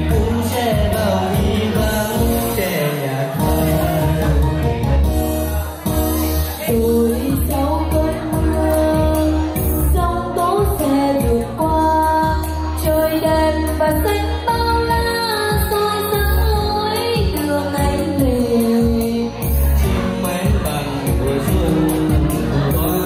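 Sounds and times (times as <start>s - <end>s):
backing music with steady beat: 0.0s - 23.0s
person singing love song: 0.0s - 23.0s.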